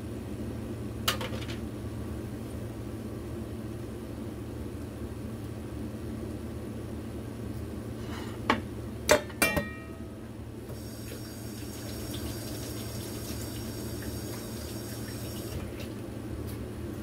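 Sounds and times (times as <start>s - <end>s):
steady low hum: 0.0s - 12.2s
metal bowl knocking against sink: 9.1s - 9.9s
kitchen tap running: 10.7s - 16.0s.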